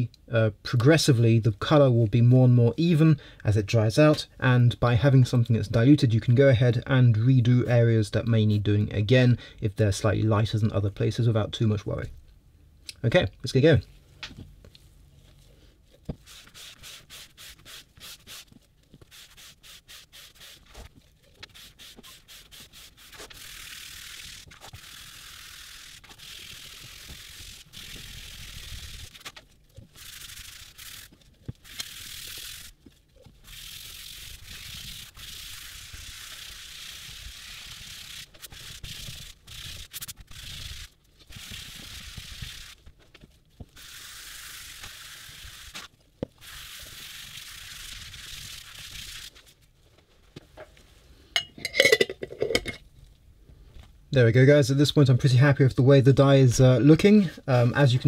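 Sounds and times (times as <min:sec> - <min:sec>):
sponge rubbing on leather: 0:16.1 - 0:25.2.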